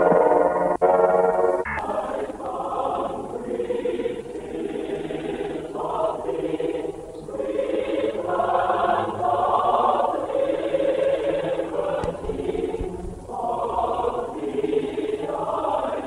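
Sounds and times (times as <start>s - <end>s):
choir singing held chords: 0.0s - 16.0s.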